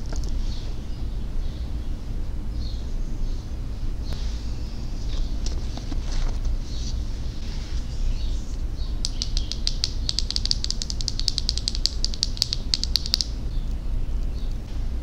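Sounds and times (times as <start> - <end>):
fingernails tapping on wood: 9.0 - 13.3.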